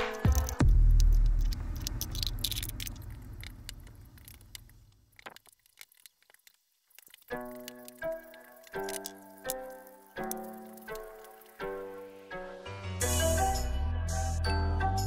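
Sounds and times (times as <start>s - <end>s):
music: 0.0s - 1.6s, 7.3s - 15.0s.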